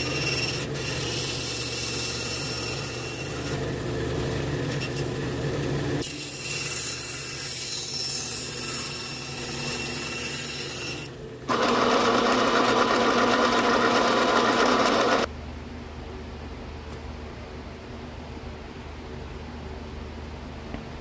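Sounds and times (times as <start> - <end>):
bandsaw cutting wood: 10.4 - 15.3.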